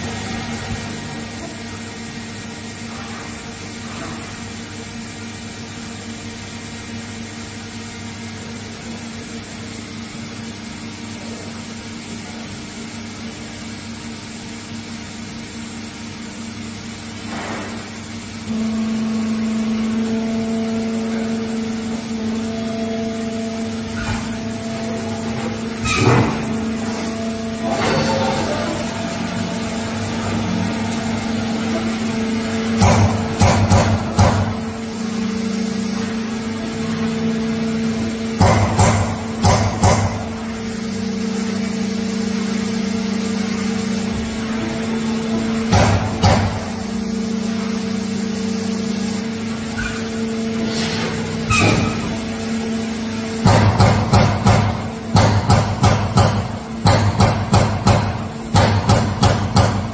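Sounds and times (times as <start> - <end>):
punching machine hum: 0.0 - 59.9.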